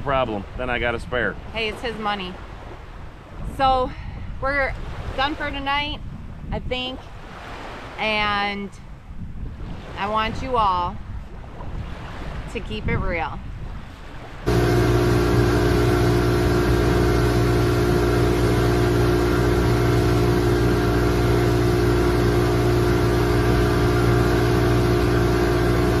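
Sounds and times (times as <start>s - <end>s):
rushing wind: 0.4s - 26.0s
outboard engine drone: 13.6s - 26.0s
rushing water: 13.8s - 26.0s.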